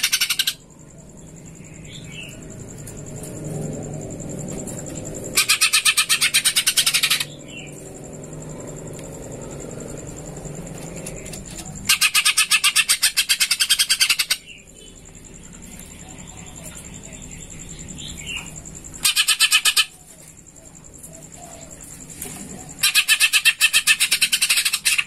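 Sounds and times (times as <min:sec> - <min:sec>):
bird trilling calls: 0:00.0 - 0:00.6, 0:05.3 - 0:07.8, 0:11.0 - 0:15.0, 0:16.0 - 0:21.8, 0:22.6 - 0:25.0.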